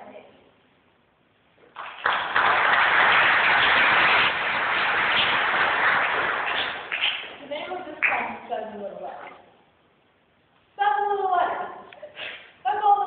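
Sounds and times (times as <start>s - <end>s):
audience applauding: 1.7s - 7.3s.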